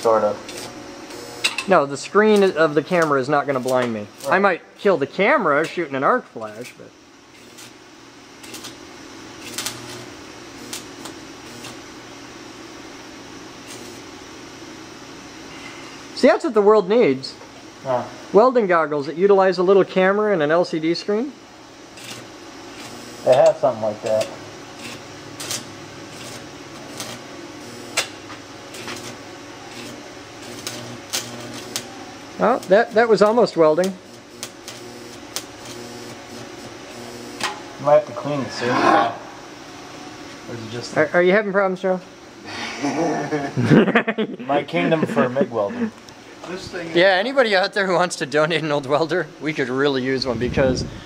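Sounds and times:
stick welder crackling: 0:00.0 - 0:04.5, 0:06.4 - 0:07.8, 0:08.4 - 0:11.8, 0:13.6 - 0:14.0, 0:21.9 - 0:37.6
welder arc crackling and hissing: 0:00.0 - 0:51.0.

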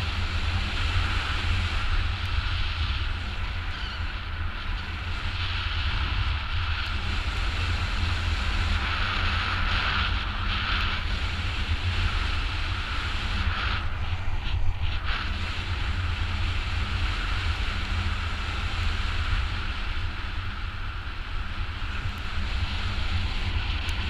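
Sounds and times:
wind rushing over microphone: 0:00.0 - 0:24.0.

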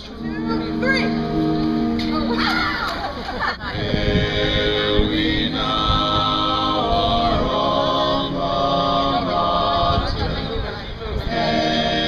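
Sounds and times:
women singing a cappella: 0:03.6 - 0:10.4, 0:11.2 - 0:12.0.

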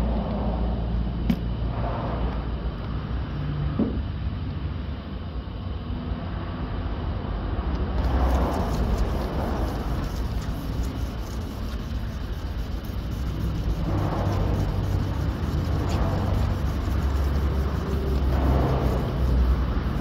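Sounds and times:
steady low rumble: 0:00.0 - 0:20.0
sanding pad rubbing hiss: 0:08.0 - 0:20.0.

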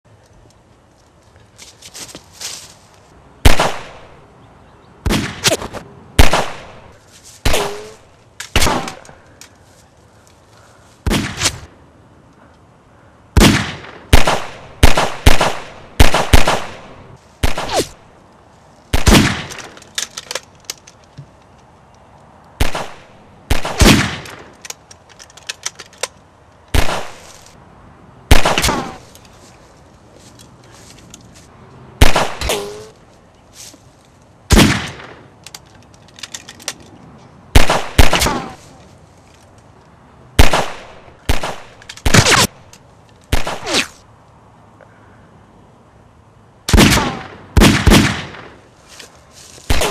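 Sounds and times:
gunshots with echoing tails: 0:13.4 - 0:17.9.

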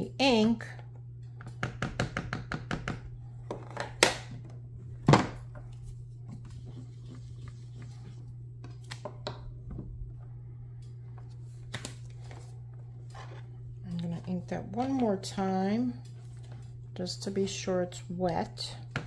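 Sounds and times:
low hum: 0:03.0 - 0:19.0.

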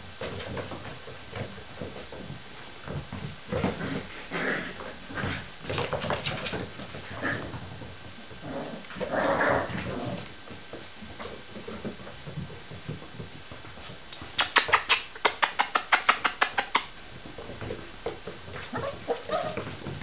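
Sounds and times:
puppies whimpering and yipping: 0:18.6 - 0:19.8.

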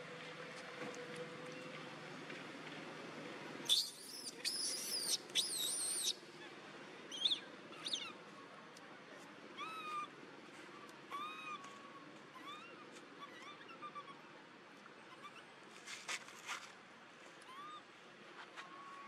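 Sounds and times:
monkey chirps: 0:03.7 - 0:06.2, 0:07.1 - 0:08.2.

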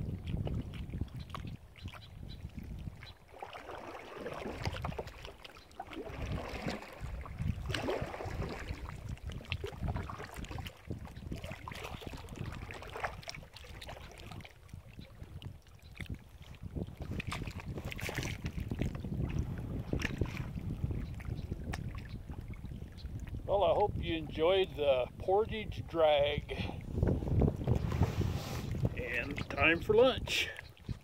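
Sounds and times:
wind buffeting microphone: 0:00.0 - 0:03.2, 0:04.3 - 0:05.3, 0:05.9 - 0:31.0
water lapping against kayak hull: 0:00.0 - 0:31.0.

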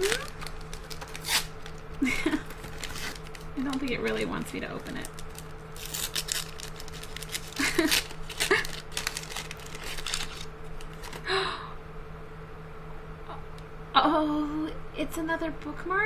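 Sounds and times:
wrapping crinkling and tearing: 0:00.0 - 0:11.3.

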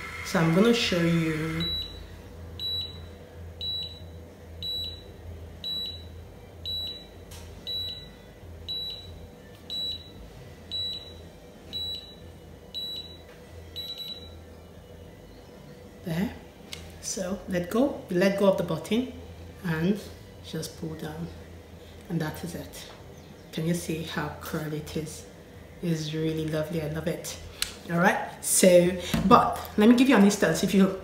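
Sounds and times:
hair curler beeping: 0:00.0 - 0:02.0
low steady hum: 0:00.0 - 0:31.0.

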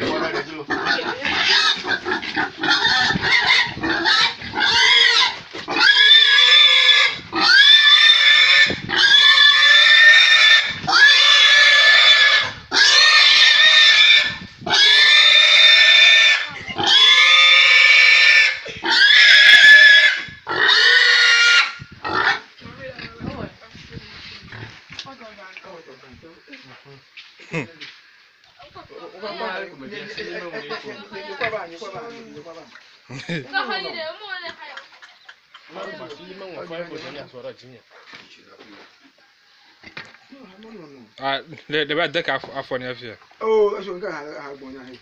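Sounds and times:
pig squealing: 0:00.0 - 0:22.5.

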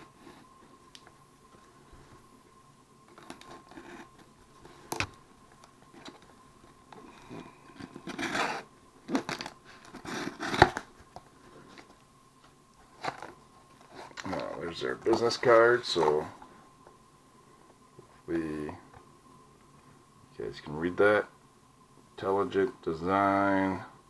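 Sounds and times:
knife cutting cardboard: 0:07.8 - 0:10.8
cardboard tearing and rustling: 0:07.8 - 0:10.9.

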